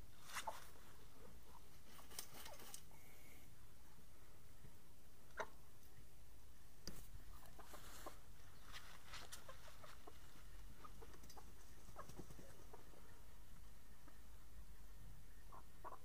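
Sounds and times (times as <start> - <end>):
scratching and rustling in dry dirt: 0.0 - 3.2, 6.8 - 14.2
hens clucking: 0.3 - 3.0, 5.3 - 5.6, 7.2 - 16.0.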